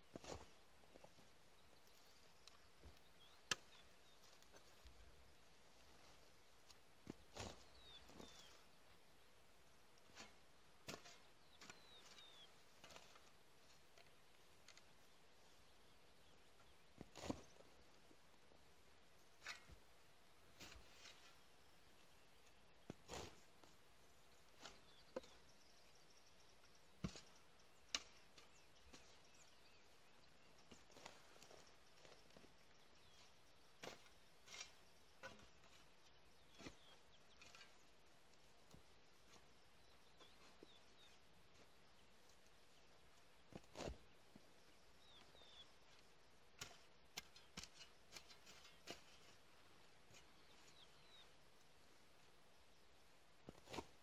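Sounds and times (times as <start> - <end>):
hoe striking dry ground: 7.0 - 8.5, 10.1 - 13.3, 27.0 - 29.4, 33.2 - 37.8, 46.6 - 51.2
small bird chirping: 7.3 - 8.7, 11.1 - 13.2, 43.8 - 49.4, 50.1 - 51.4
hoe chopping into ground: 33.8 - 35.8.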